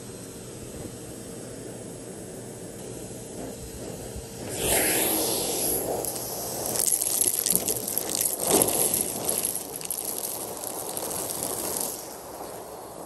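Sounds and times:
vacuum cleaner running: 0.0s - 13.0s
debris crackling through hose: 4.5s - 13.0s.

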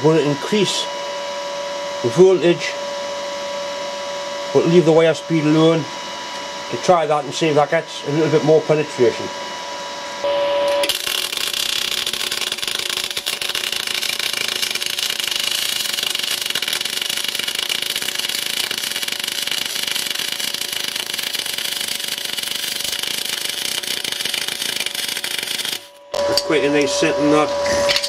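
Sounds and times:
welding arc hissing and crackling: 10.7s - 26.0s.

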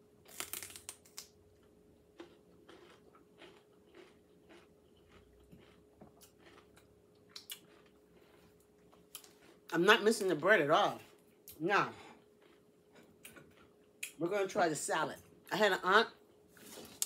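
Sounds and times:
faint steady hum: 0.0s - 17.0s
person chewing crisp food: 0.2s - 10.3s, 11.0s - 14.2s.

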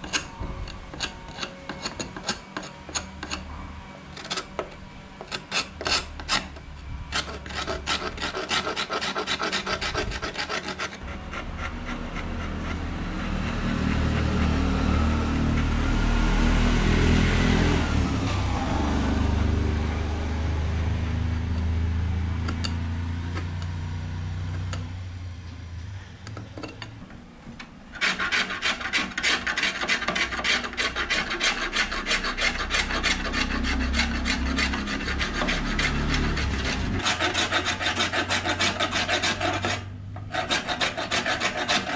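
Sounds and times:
sandpaper rasping on wood: 7.2s - 12.8s, 28.0s - 41.9s.

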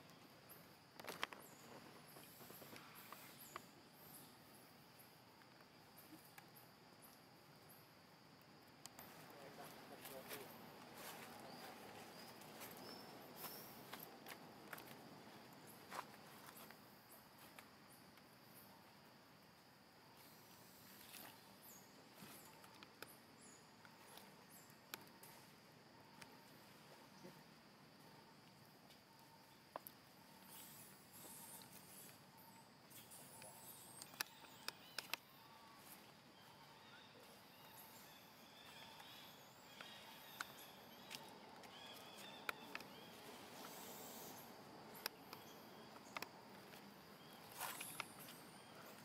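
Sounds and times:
faint outdoor hiss: 0.0s - 49.0s
insect drone: 0.0s - 49.0s
faint high chirps: 28.1s - 49.0s
sharp isolated clicks: 33.4s - 35.2s, 39.8s - 43.0s.

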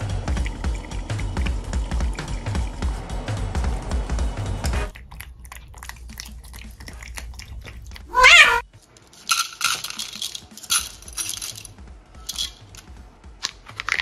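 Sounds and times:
cat meowing: 8.1s - 8.6s
kibble rattling into plastic bowls: 8.2s - 14.0s.

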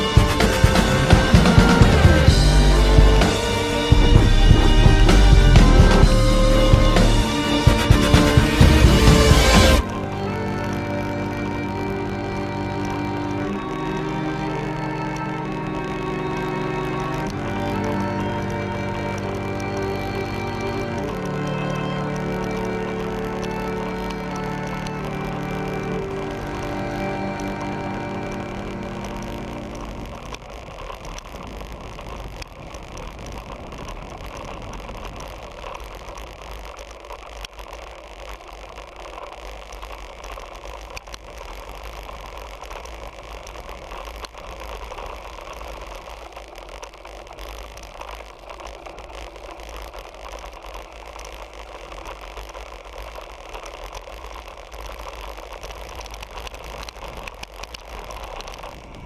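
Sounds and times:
wind rushing on microphone: 0.0s - 37.2s, 40.1s - 59.0s
bicycle rattling and clicking: 29.7s - 59.0s.

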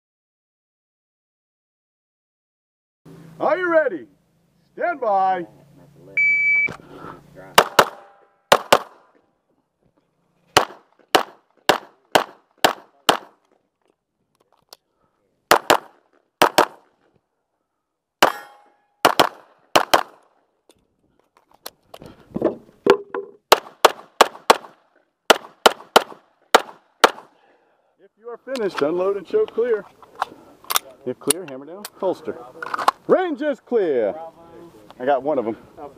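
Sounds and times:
pistol shots: 7.6s - 9.1s, 10.6s - 13.4s, 15.5s - 16.9s, 18.2s - 20.3s, 23.5s - 27.3s.

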